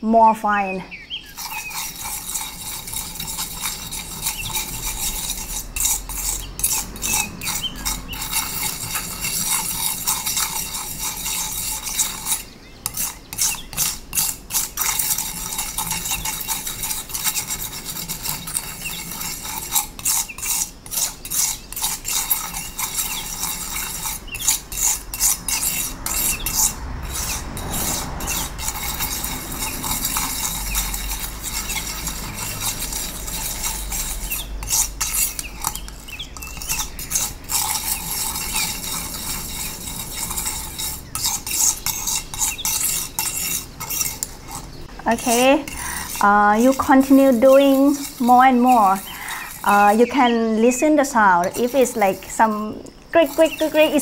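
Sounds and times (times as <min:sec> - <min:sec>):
palette knife scraping paste: 0:01.2 - 0:54.0.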